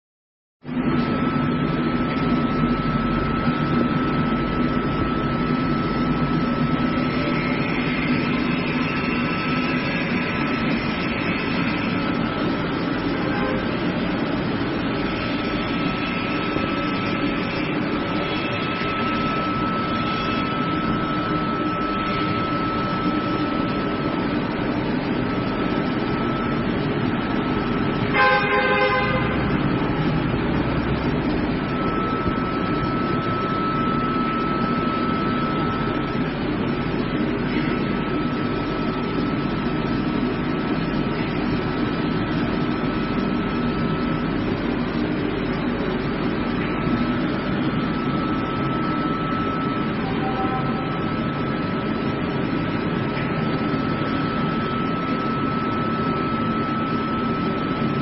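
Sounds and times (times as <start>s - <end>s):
machine hum with high whine: 0.6s - 58.0s
brief higher tone: 13.1s - 13.8s, 28.0s - 36.3s, 48.2s - 51.3s.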